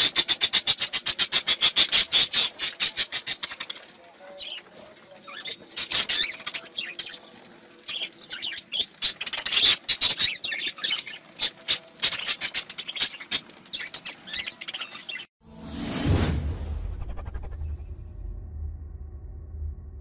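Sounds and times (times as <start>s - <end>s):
budgerigars chattering: 0.0s - 15.3s.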